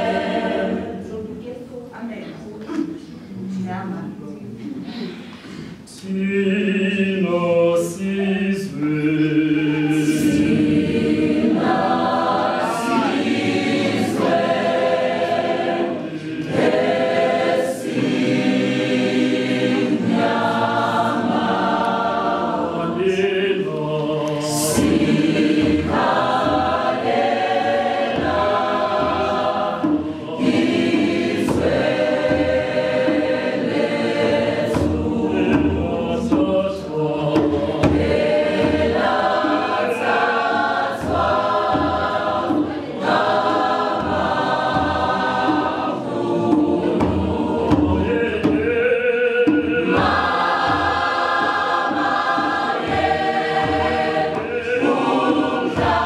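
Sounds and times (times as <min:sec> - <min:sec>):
mixed choir singing in harmony: 0:00.0 - 0:01.5, 0:05.5 - 0:56.0.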